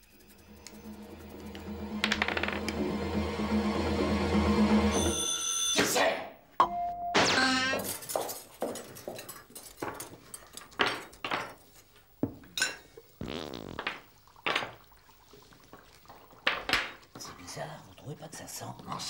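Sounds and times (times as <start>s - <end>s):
scraping sound: 0.0s - 3.5s
cutlery and plates clinking: 7.8s - 11.7s.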